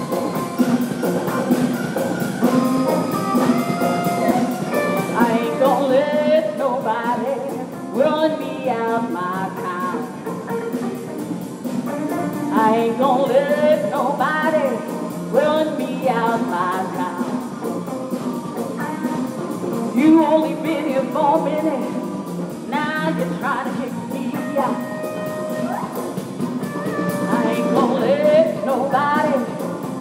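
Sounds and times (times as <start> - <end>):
live blues band playing: 0.0 - 30.0
woman singing: 4.1 - 10.2, 12.4 - 17.5, 19.9 - 22.1, 22.7 - 26.0, 26.8 - 30.0.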